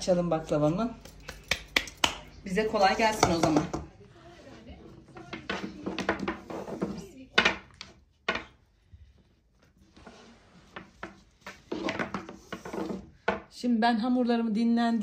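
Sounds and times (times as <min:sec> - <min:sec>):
rolling pin rolling dough: 0:02.8 - 0:13.6.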